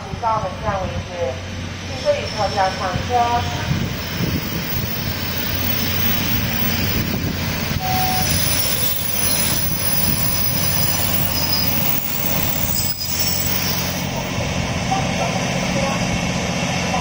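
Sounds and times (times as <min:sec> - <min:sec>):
diesel engine hum: 0:00.0 - 0:17.0
train wheel rumble: 0:00.0 - 0:17.0
faint wheel squeals: 0:07.8 - 0:14.1.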